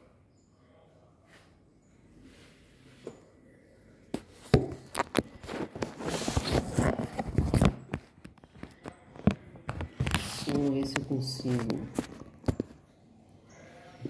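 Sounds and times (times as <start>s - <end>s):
rubbing and rustling: 4.2s - 12.9s.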